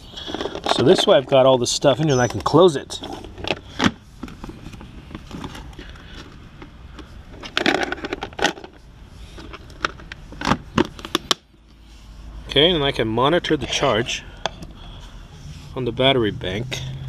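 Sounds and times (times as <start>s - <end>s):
cables clacking in plastic toolbox: 0.1s - 1.5s, 2.2s - 11.6s.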